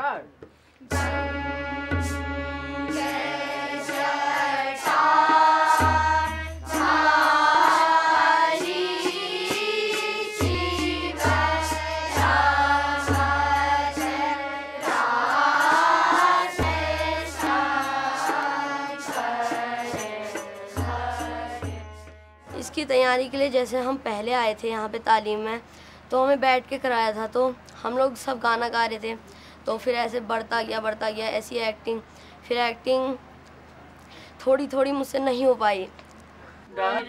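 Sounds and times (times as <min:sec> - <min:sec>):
low drum strokes: 0:00.9 - 0:22.8
harmonium: 0:00.9 - 0:25.2
group singing a chant in unison: 0:02.9 - 0:21.8, 0:36.7 - 0:37.0.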